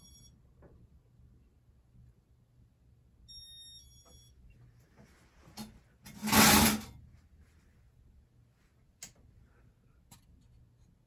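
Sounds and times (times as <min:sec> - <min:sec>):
short high beeps: 0:00.0 - 0:00.3.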